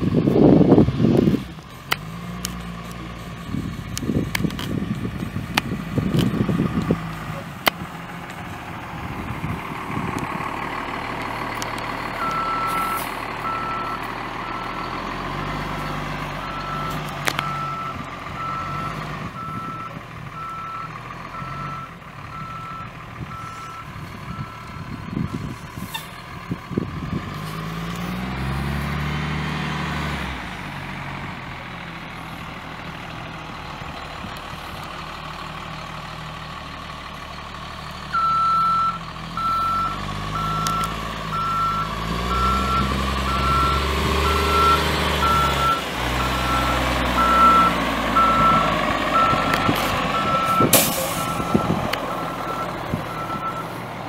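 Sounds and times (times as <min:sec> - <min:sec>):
diesel bus engine revving: 0:00.0 - 0:54.0
backup alarm beeping: 0:38.2 - 0:49.5, 0:50.1 - 0:53.8.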